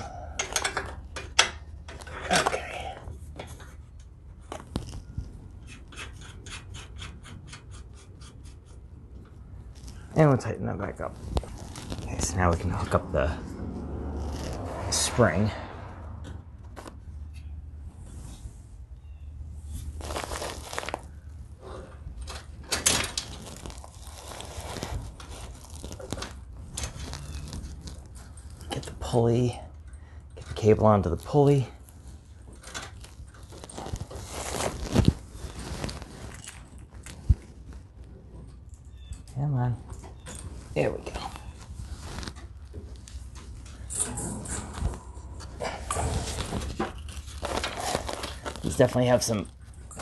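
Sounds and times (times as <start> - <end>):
metal spring hardware scraping: 43.6 - 47.8.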